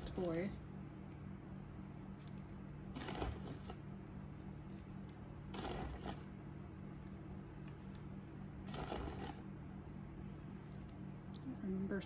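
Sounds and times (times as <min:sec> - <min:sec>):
steady low hum: 0:00.0 - 0:12.0
treats scraping into rubber ball: 0:02.9 - 0:03.8, 0:05.5 - 0:06.4, 0:08.6 - 0:09.6.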